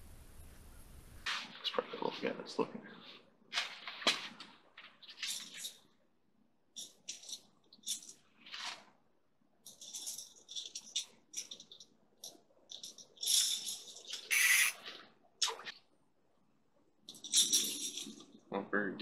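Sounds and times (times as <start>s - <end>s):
fishing tackle rustling and scratching: 3.0s - 6.0s, 6.8s - 15.2s, 17.0s - 18.5s.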